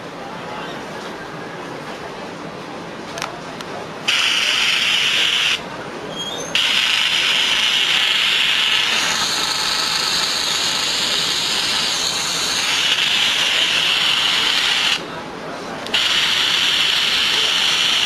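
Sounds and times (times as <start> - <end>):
tv static hiss from phone speaker: 4.1 - 5.6, 6.6 - 15.1, 15.9 - 18.0.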